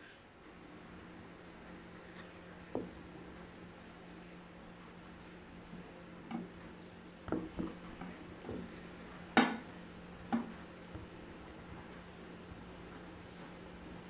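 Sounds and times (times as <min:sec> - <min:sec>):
soft taps and thuds on table: 0:02.7 - 0:03.0, 0:07.3 - 0:08.8.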